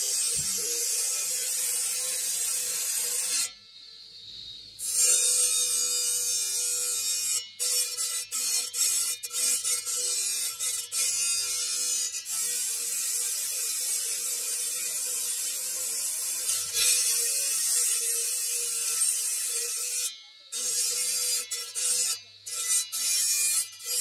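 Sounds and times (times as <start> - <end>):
stone-cutting disc grinding: 0.0 - 3.6, 4.8 - 24.0.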